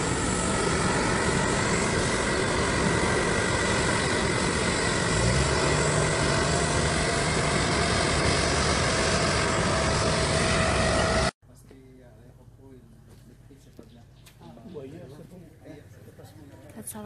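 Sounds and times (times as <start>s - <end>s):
aircraft engine whine: 0.0s - 11.7s
low hum: 0.0s - 16.2s.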